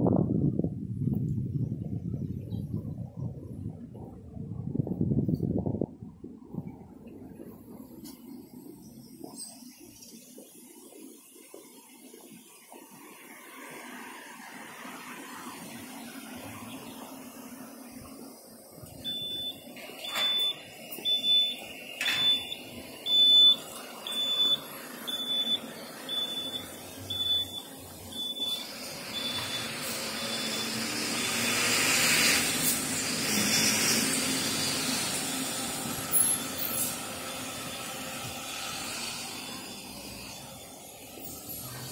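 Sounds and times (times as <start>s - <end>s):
street traffic rushing: 6.0s - 41.9s
high-pitched electronic beeper: 19.1s - 31.6s.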